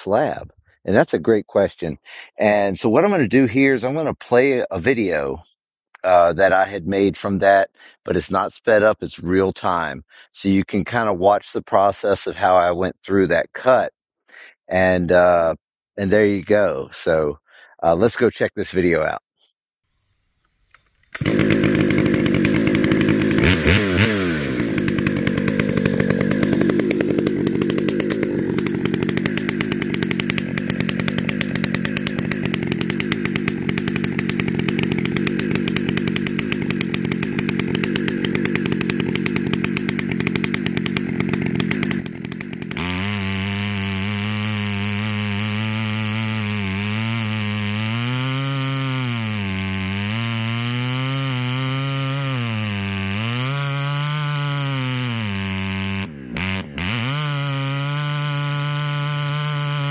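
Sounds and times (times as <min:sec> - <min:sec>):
chainsaw cutting through log: 0:20.8 - 0:59.9.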